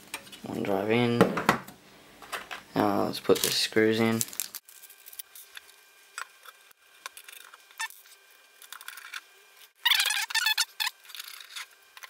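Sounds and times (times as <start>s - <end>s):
rattling and crinkling plastic bag: 3.2s - 5.5s.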